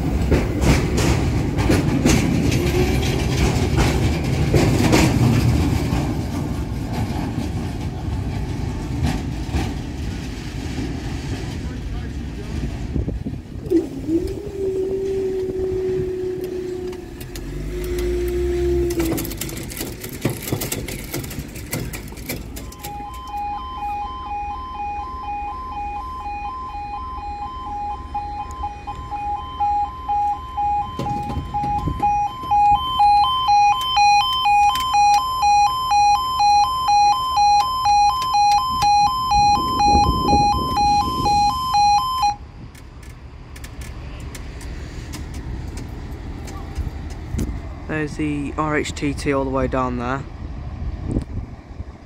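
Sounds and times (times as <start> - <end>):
two-tone level crossing alarm: 22.6 - 42.4.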